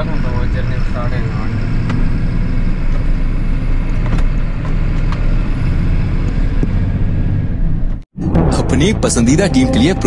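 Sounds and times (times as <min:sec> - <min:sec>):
lorry diesel engine running: 0:00.0 - 0:08.0
road noise: 0:00.0 - 0:10.0.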